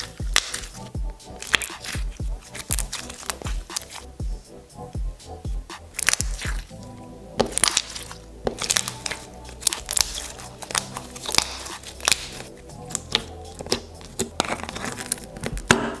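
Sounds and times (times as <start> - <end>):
background music: 0.0 - 16.0
slime clicking pops: 7.4 - 13.8.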